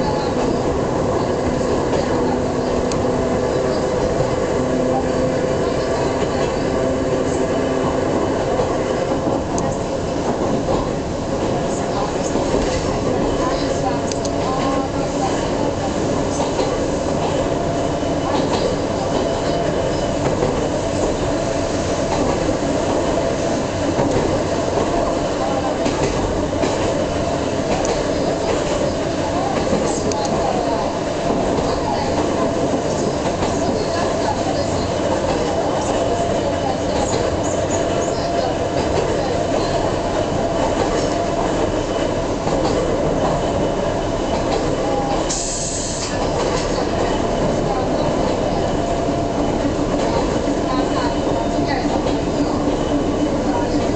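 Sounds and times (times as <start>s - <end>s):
train wheel and rail rumble: 0.0s - 53.9s
rush of hiss: 45.3s - 46.2s.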